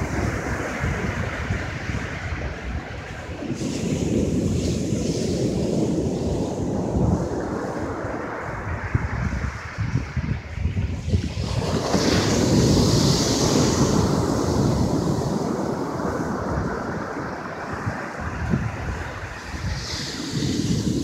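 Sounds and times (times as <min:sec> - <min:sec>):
foam hissing on sand: 0:00.0 - 0:21.0
ocean waves crashing: 0:00.0 - 0:21.0
wind noise on microphone: 0:00.0 - 0:21.0.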